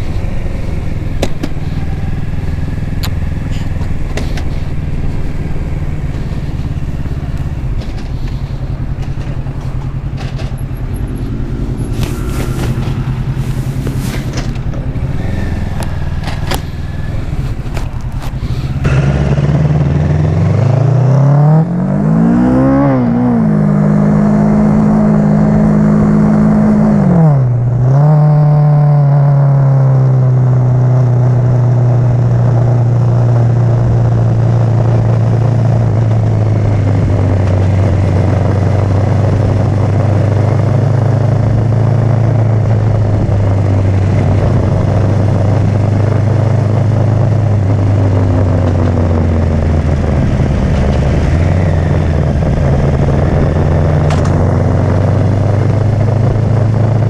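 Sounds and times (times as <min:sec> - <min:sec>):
motorcycle engine revving: 0:00.0 - 0:57.0
wind rush: 0:04.0 - 0:18.9, 0:41.3 - 0:56.8.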